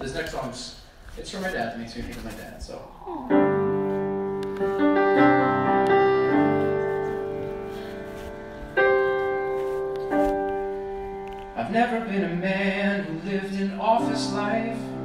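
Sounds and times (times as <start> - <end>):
grand piano chords: 3.3 - 15.0.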